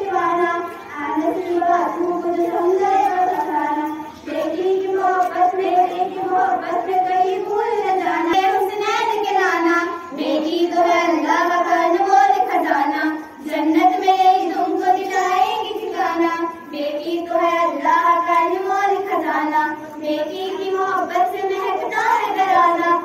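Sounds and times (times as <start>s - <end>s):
girls singing together: 0.0s - 23.0s.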